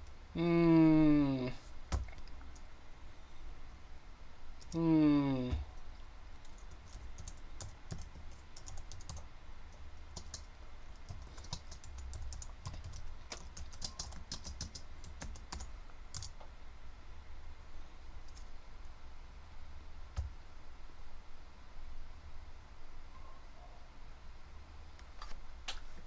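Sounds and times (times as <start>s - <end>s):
low steady hum: 0.0s - 26.0s
typing on computer keyboard: 6.4s - 9.3s, 10.1s - 16.4s.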